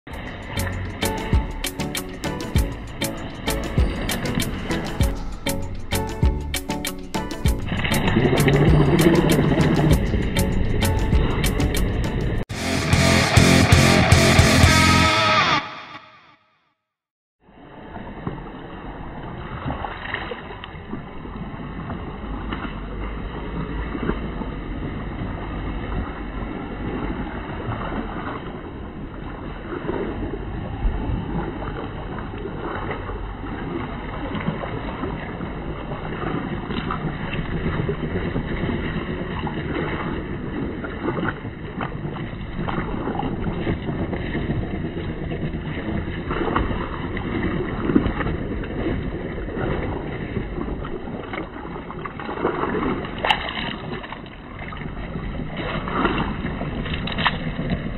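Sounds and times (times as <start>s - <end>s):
water sloshing: 0.1s - 12.2s, 31.3s - 57.9s.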